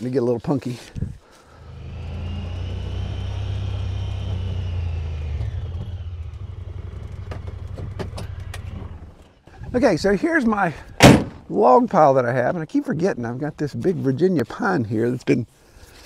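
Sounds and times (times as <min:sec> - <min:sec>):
utility vehicle engine rumbling: 0:00.9 - 0:11.4.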